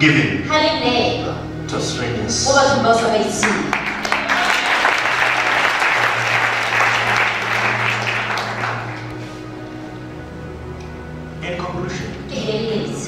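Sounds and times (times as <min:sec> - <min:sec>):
audience applauding: 0:03.4 - 0:09.3.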